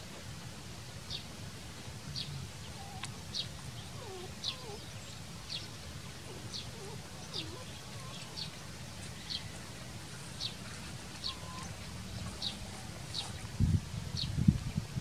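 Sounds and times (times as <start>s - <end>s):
faint wavering calls: 2.7s - 13.4s.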